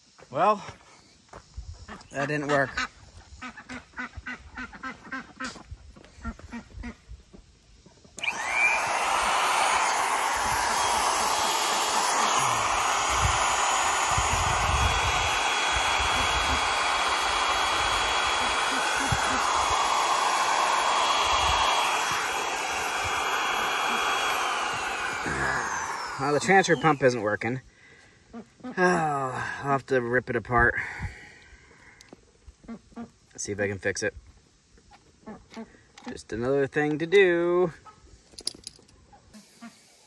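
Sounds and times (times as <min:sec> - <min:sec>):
faint duck quacks: 0:01.9 - 0:05.6
electric pump whirring: 0:08.2 - 0:27.4.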